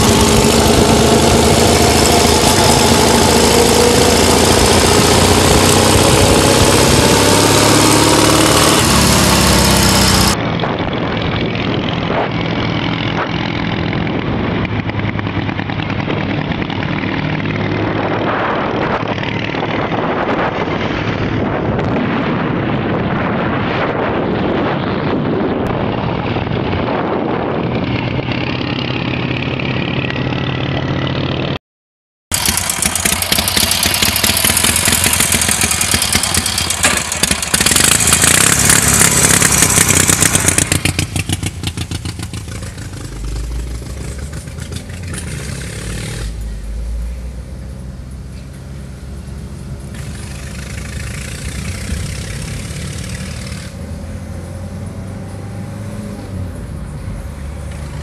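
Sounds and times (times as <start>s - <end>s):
motorcycle engine running: 0.0s - 22.3s, 32.3s - 55.4s
wind on microphone: 0.0s - 31.1s, 49.9s - 58.0s
road noise: 0.0s - 31.6s, 32.3s - 58.0s.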